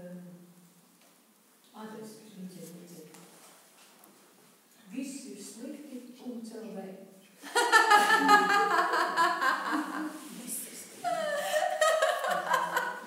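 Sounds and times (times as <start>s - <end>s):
woman laughing: 7.5s - 10.2s, 11.0s - 13.0s.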